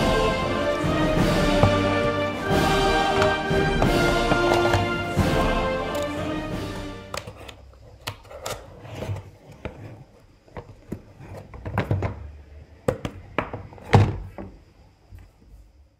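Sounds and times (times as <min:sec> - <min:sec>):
box thumping on wooden table: 0:01.5 - 0:02.1.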